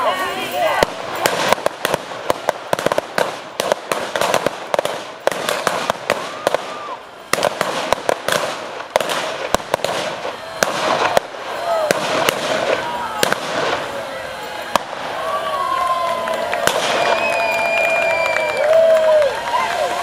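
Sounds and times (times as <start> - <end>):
revolver gunshots: 0.8 - 13.9.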